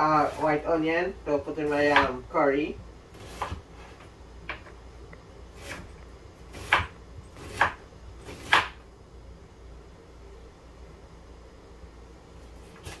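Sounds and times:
knife chopping on wooden board: 1.8 - 2.2, 3.2 - 3.6, 6.5 - 8.8.

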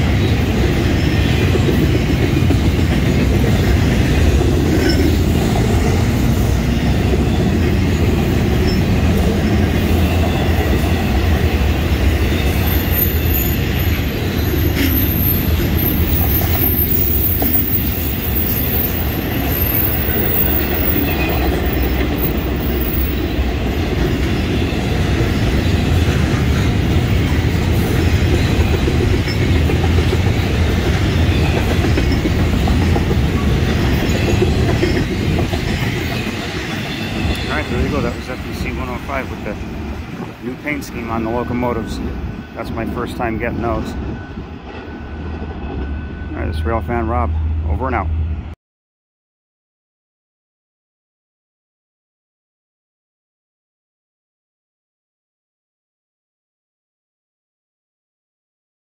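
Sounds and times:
freight train cars rolling past: 0.0 - 48.6
high wheel squeal: 12.2 - 29.6, 30.4 - 39.6.

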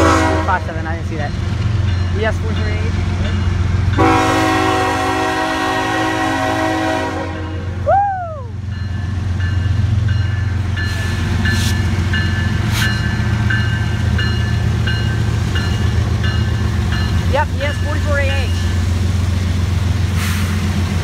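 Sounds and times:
locomotive horn chord: 0.0 - 0.9, 4.0 - 7.8
crossing bell dinging: 0.0 - 5.6, 8.6 - 19.1.

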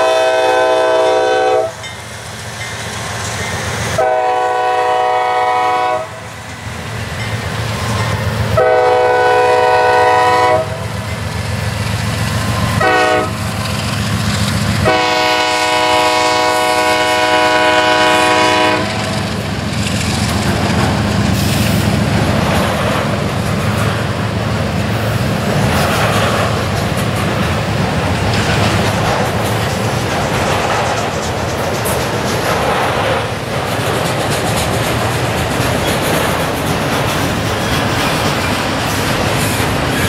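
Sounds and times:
locomotive air horn blasts: 0.0 - 1.9, 4.0 - 6.3, 8.5 - 10.9, 12.8 - 13.5, 14.8 - 19.1
wheel clatter on rails: 18.9 - 40.0.

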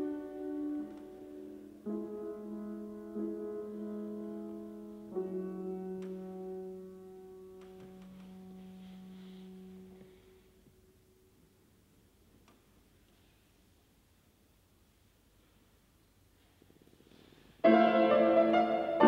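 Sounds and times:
grand piano chords: 0.0 - 11.9, 17.6 - 19.0.

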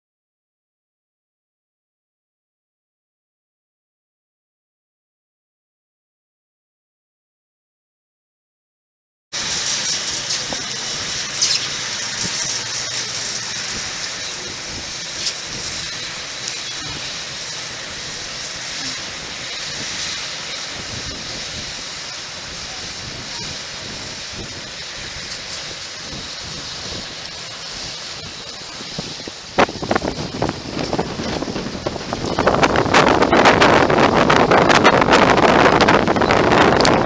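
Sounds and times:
steady outdoor hiss: 9.4 - 37.0.

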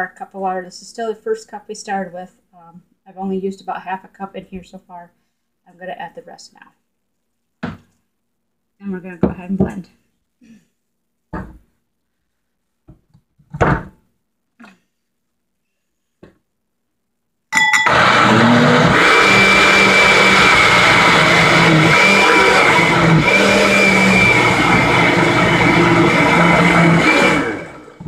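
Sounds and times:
blender running with high whine: 17.8 - 28.0
blender starting clatter: 17.8 - 28.0.

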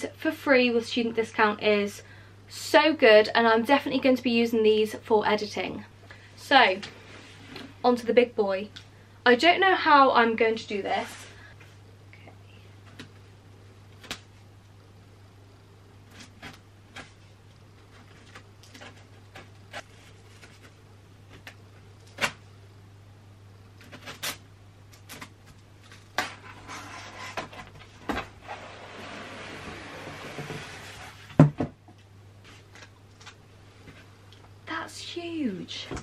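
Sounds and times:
cardboard sliding on cardboard: 26.4 - 27.6, 28.4 - 31.3.

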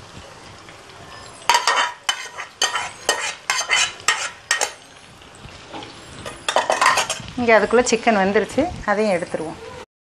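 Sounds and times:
metal spoon scraping pot: 1.1 - 4.8, 5.7 - 7.3.

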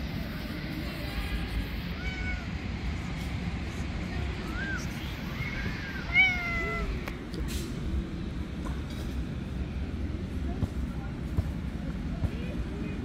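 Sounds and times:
steady low rumble: 0.0 - 13.0
kittens meowing: 1.9 - 2.6, 4.5 - 7.0.

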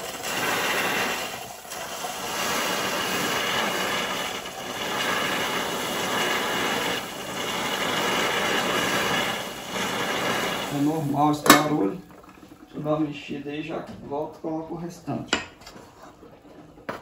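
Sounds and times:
hot liquid sizzling and crackling: 0.0 - 13.0.

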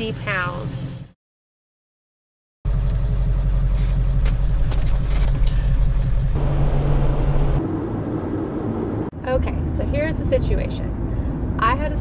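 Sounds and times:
vehicle driving rumble: 2.7 - 12.0.

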